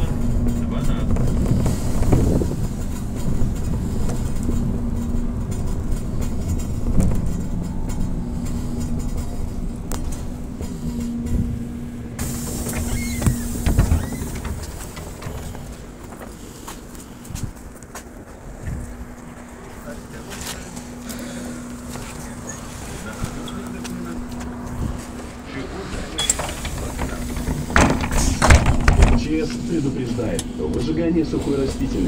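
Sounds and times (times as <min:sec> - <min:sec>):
road rumble and rattles: 0:00.0 - 0:32.0
knocks: 0:26.4 - 0:29.3.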